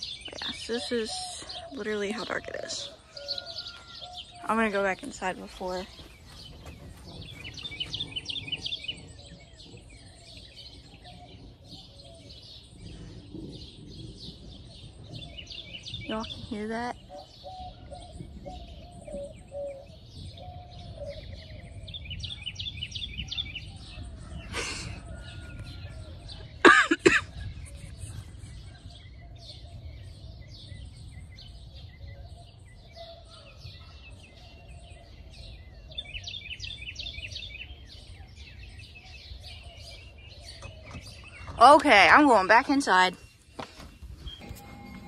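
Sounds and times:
small birds chirping: 0.0s - 45.0s.

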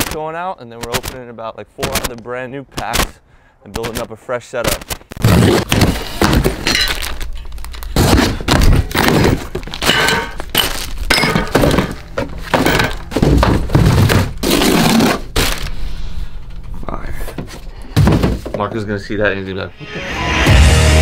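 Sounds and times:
cardboard tearing: 4.7s - 9.8s, 13.7s - 15.7s
thuds: 17.9s - 18.7s.

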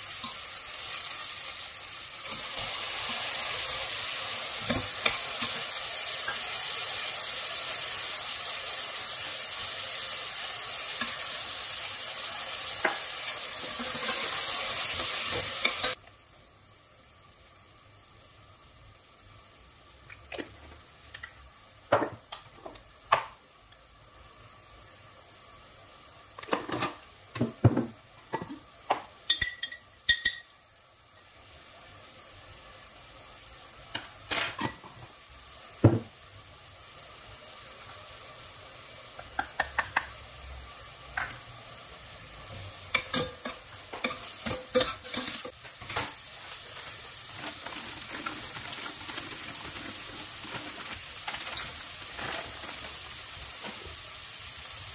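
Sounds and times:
vegetables sizzling in oil: 0.0s - 54.9s
metal spoon clinking in pot: 29.3s - 30.5s, 42.9s - 45.5s.

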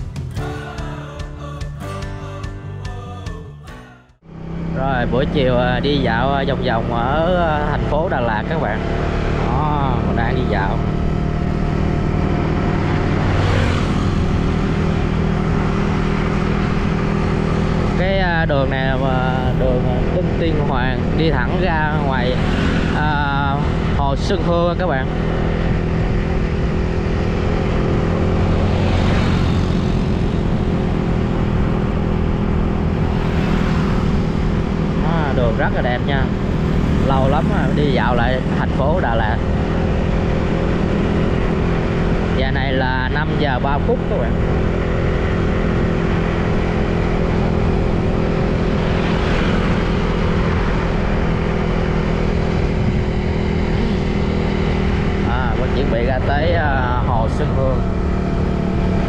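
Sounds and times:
road and wind noise: 0.0s - 0.4s, 4.2s - 59.0s
vehicle engine running: 4.1s - 59.0s.

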